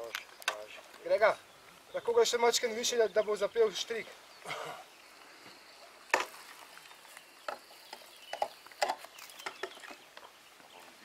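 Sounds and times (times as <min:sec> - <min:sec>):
climbing irons knocking on wooden pole: 0:06.1 - 0:06.4, 0:07.4 - 0:10.3.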